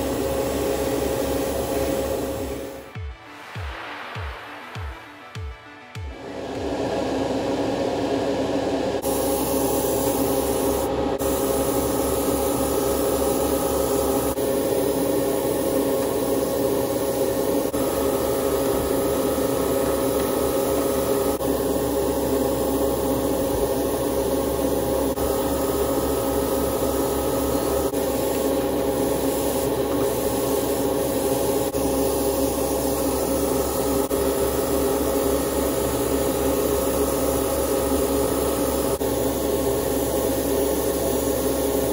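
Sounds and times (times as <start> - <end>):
airbrush spraying hiss: 9.0 - 21.4, 26.3 - 39.0
motor humming: 9.0 - 41.9.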